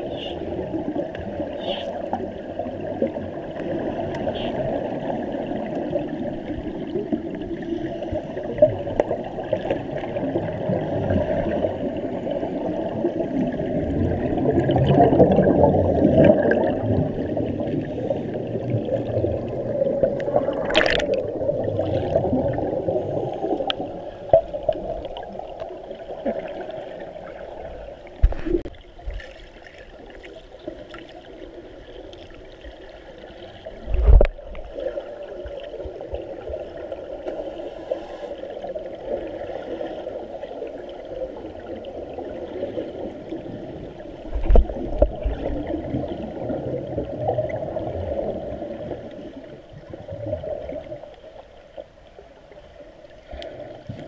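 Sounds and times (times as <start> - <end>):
water gurgling and sloshing: 0.0 - 54.0.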